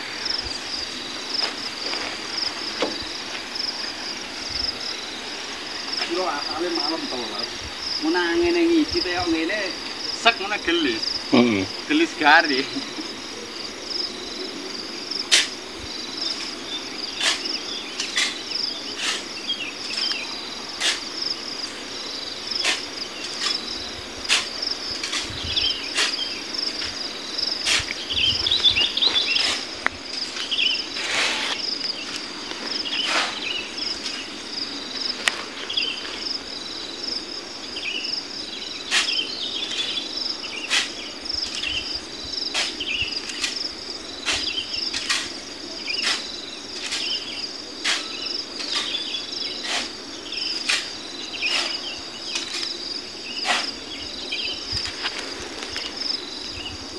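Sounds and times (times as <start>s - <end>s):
high-pitched insect chorus: 0.0s - 56.9s
shovel scraping sand: 15.3s - 15.6s, 16.3s - 21.9s, 22.5s - 34.5s, 38.8s - 40.0s, 40.6s - 41.7s, 42.5s - 52.8s, 53.4s - 53.8s.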